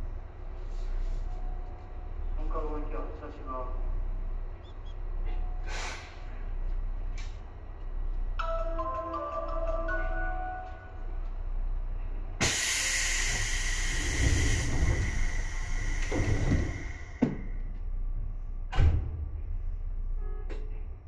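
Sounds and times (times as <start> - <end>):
compressed air hissing: 5.6 - 6.2, 12.4 - 17.2.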